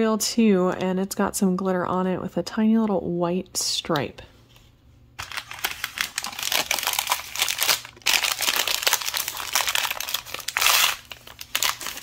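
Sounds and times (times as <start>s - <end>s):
plastic wrapper crinkling: 5.2s - 12.0s.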